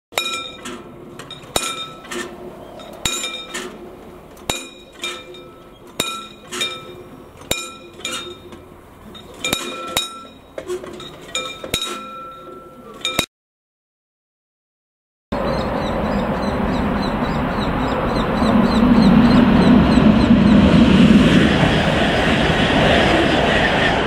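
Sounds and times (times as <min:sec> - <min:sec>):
level-crossing warning bell: 0:00.2 - 0:13.2.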